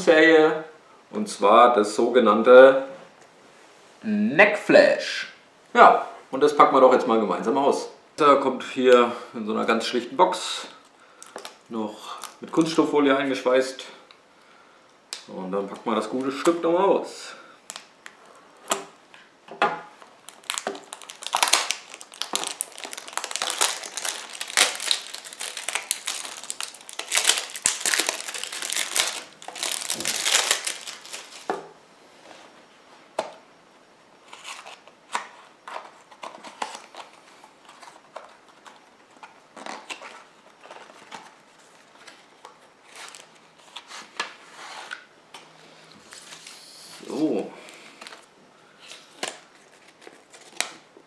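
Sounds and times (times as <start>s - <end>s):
shrink-wrap crinkling: 10.8s - 12.8s, 17.6s - 18.2s, 20.0s - 31.6s, 34.2s - 45.0s, 46.0s - 50.9s.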